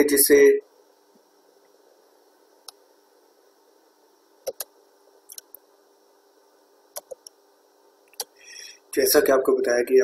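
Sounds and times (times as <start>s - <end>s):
faint steady hum: 0.0s - 10.0s
computer mouse clicks: 4.4s - 4.7s, 5.3s - 5.6s, 6.9s - 7.4s.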